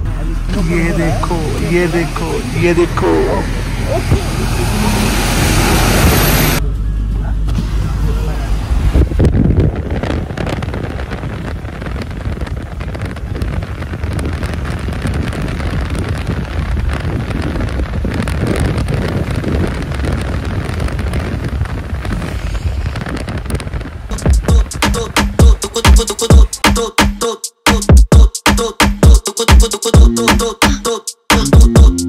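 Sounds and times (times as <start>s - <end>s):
road and tyre noise: 0.0s - 26.7s
wind buffeting microphone: 8.0s - 25.5s.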